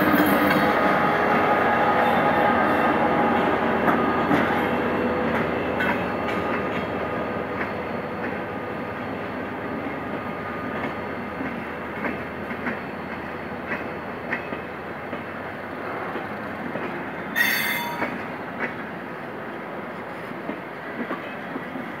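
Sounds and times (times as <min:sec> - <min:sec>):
train coaches rumbling past: 0:00.0 - 0:22.0
metallic wheel squeal: 0:17.4 - 0:18.0.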